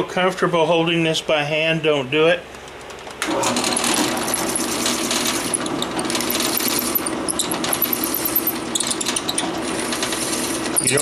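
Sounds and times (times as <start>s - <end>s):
drill press motor hum: 2.8s - 11.0s.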